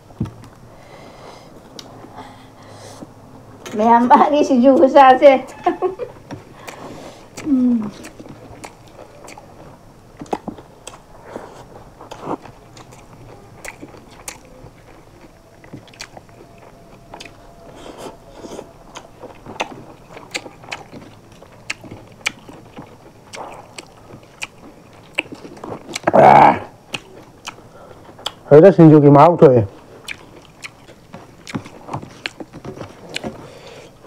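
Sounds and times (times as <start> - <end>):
people eating and chewing: 0.0 - 3.8, 4.7 - 34.0
wet lip smacks: 6.6 - 9.5.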